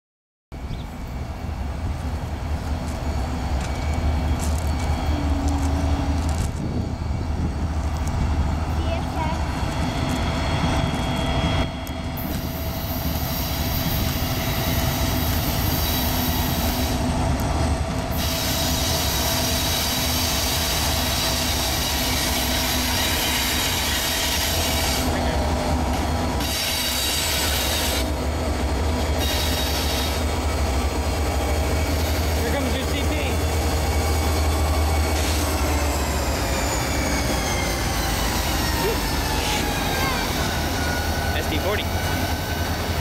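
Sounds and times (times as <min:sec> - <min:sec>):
locomotive engines rumbling: 0:00.6 - 0:43.0
steel wheels squealing: 0:02.8 - 0:07.6, 0:18.2 - 0:25.4, 0:26.3 - 0:28.2, 0:28.9 - 0:30.6, 0:31.6 - 0:43.0.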